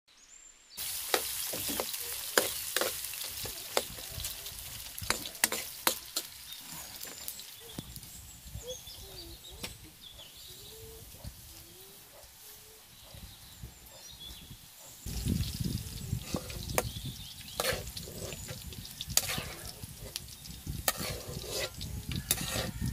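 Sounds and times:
rice stirred in water: 0:00.8 - 0:07.6, 0:15.1 - 0:22.9
carrots sizzling in oil: 0:00.8 - 0:09.0, 0:14.3 - 0:22.9.

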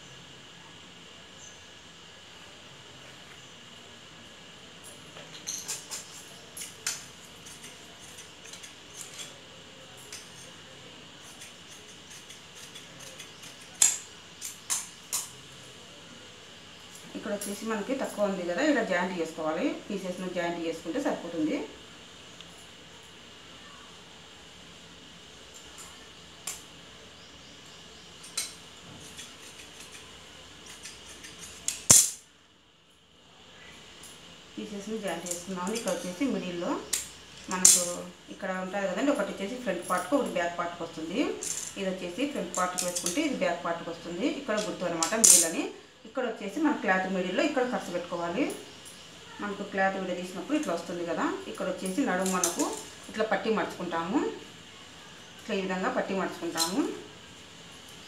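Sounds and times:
shears snipping fabric: 0:05.5 - 0:15.4, 0:28.2 - 0:32.2, 0:41.2 - 0:43.4, 0:44.4 - 0:45.6, 0:51.8 - 0:53.0.

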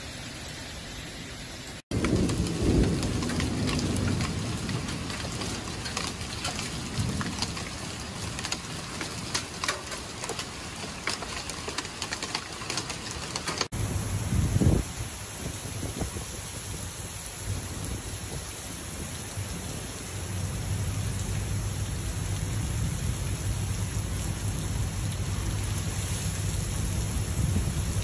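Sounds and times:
heavy rain on wooden deck: 0:00.2 - 0:28.0
hailstones ticking: 0:01.9 - 0:13.7
low thunder rumble: 0:01.9 - 0:28.0.

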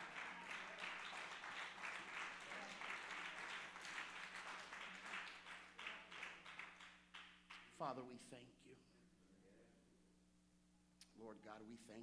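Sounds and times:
crowd clapping: 0:00.0 - 0:07.7.

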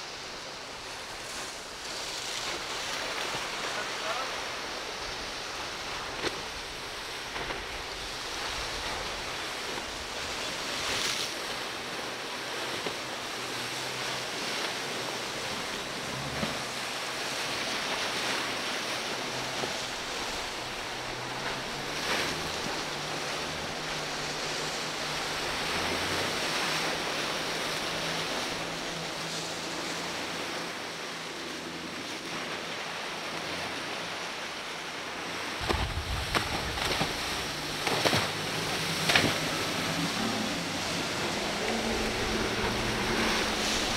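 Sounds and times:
outboard motors humming: 0:00.0 - 0:43.9
surf and spray hissing: 0:00.0 - 0:43.9
wind buffeting microphone: 0:35.6 - 0:43.9.

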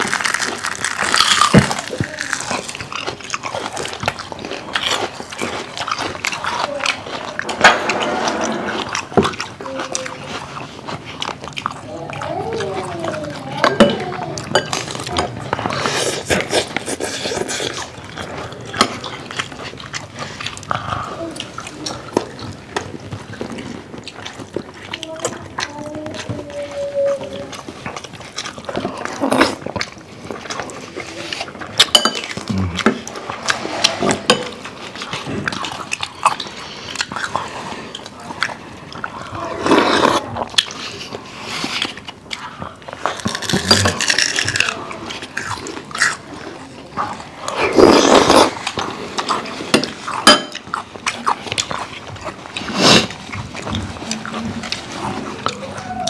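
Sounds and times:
chewing and mouth smacks: 0:00.0 - 0:56.0
utensils clicking on plates: 0:31.8 - 0:33.0, 0:49.7 - 0:50.7.

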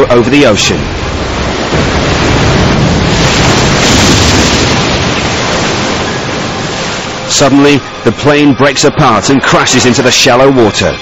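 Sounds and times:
sea: 0:00.0 - 0:11.0.

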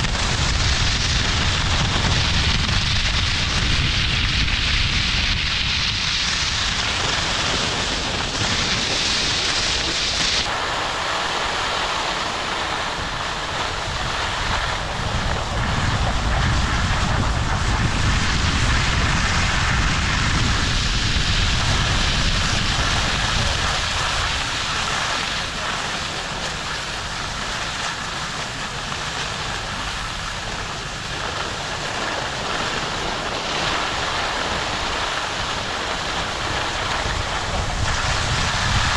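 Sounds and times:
skis sliding on snow: 0:00.0 - 0:38.9
wind buffeting microphone: 0:00.0 - 0:38.9.

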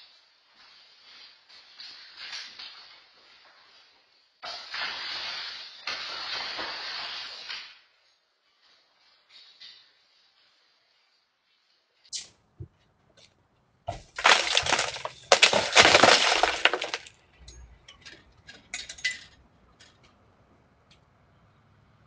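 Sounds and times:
glass shattering: 0:13.9 - 0:19.9
glass pieces clinking: 0:14.1 - 0:20.0.

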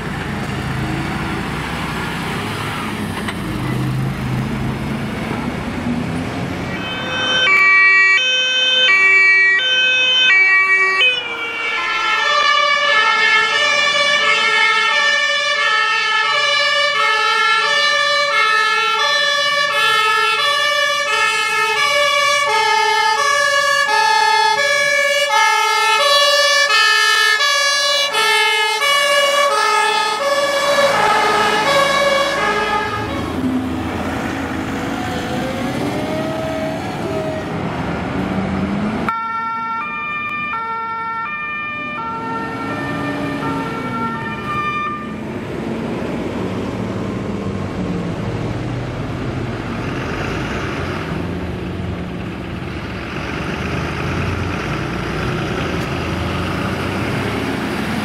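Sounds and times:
diesel fire truck engines: 0:00.0 - 0:58.0
fire truck two-tone siren: 0:06.6 - 0:37.8, 0:39.0 - 0:48.3.

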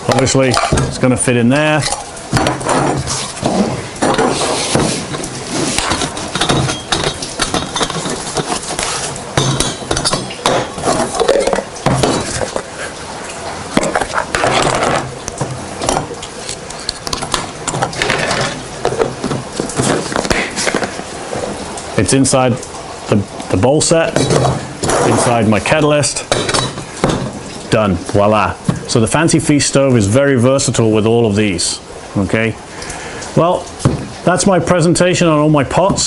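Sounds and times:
metal cookware clinking: 0:05.8 - 0:08.7, 0:09.4 - 0:12.4, 0:24.1 - 0:24.6, 0:26.2 - 0:27.6.

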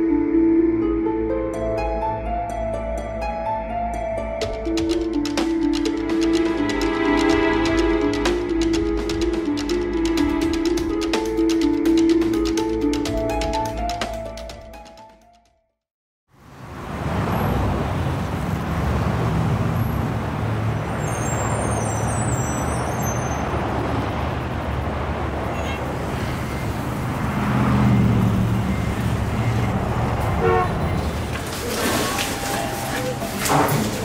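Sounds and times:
street traffic rumble: 0:04.2 - 0:14.5, 0:16.3 - 0:34.0
horn toots: 0:30.3 - 0:34.0.

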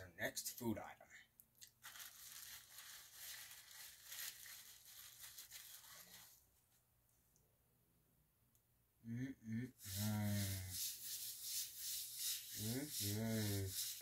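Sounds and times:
man humming while eating: 0:09.0 - 0:10.5.

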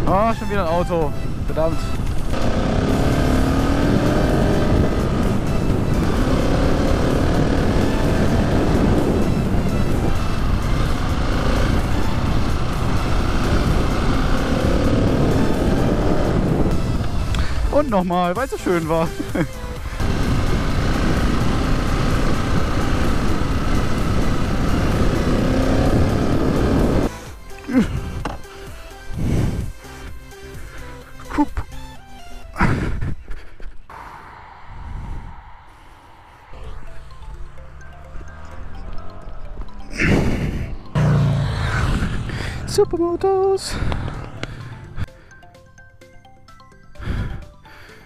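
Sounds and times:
wind noise on microphone: 0:00.7 - 0:17.7, 0:20.0 - 0:27.1, 0:29.2 - 0:29.8, 0:33.9 - 0:36.9
motorcycle engine accelerating: 0:01.5 - 0:17.8, 0:18.6 - 0:28.2, 0:34.8 - 0:45.1.

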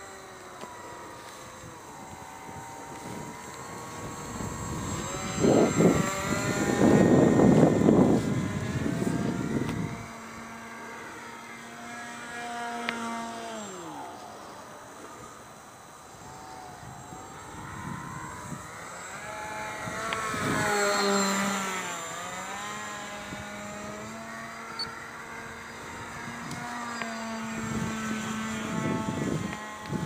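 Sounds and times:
model airplane motor whining: 0:00.0 - 0:30.0.

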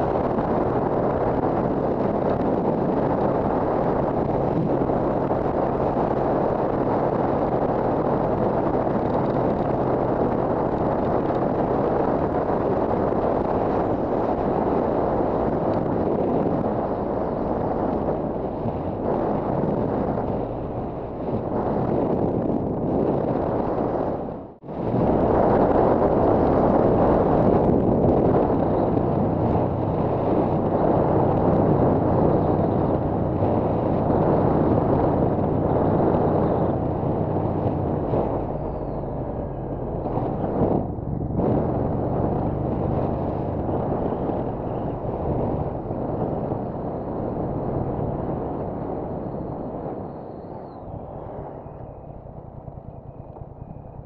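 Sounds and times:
wind rushing over microphone: 0:00.0 - 0:54.0
motorcycle engine running: 0:50.7 - 0:54.0.

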